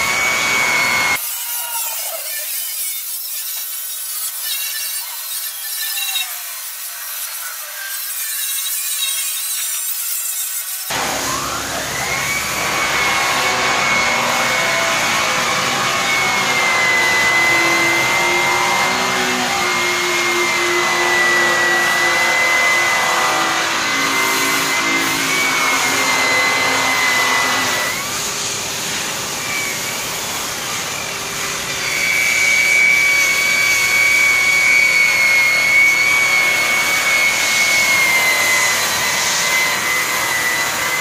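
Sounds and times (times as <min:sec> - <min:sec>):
polisher motor whine: 0:00.0 - 0:01.2, 0:10.9 - 0:28.3, 0:29.3 - 0:41.0.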